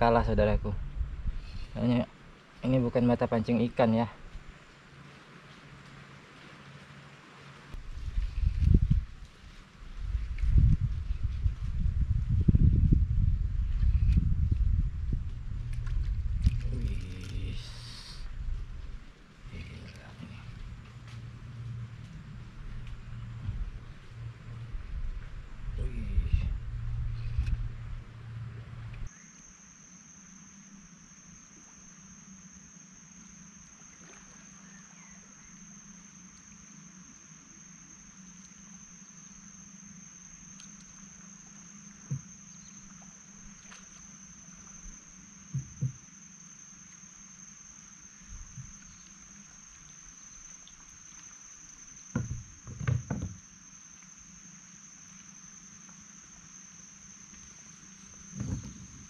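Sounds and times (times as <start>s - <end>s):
high-pitched insect drone: 15.4s - 18.4s, 25.7s - 28.4s, 29.0s - 59.0s
dull knocks on wooden boat: 42.0s - 42.4s, 45.5s - 46.0s, 52.1s - 53.4s, 58.2s - 59.0s.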